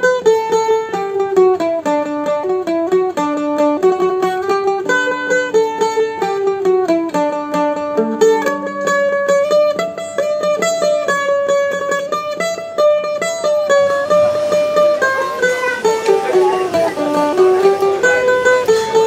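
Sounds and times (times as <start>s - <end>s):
plucked-string melody: 0.0s - 19.0s.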